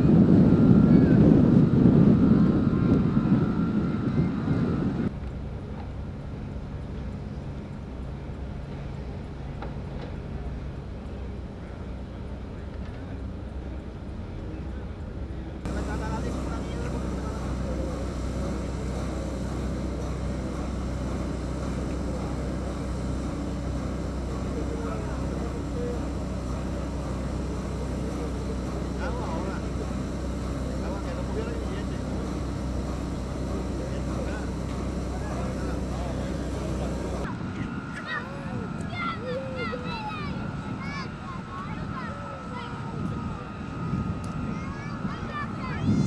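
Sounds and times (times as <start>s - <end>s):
wind buffeting microphone: 0.0s - 5.2s, 15.6s - 46.0s
faint steady high whine: 0.0s - 46.0s
ship machinery noise: 0.0s - 46.0s.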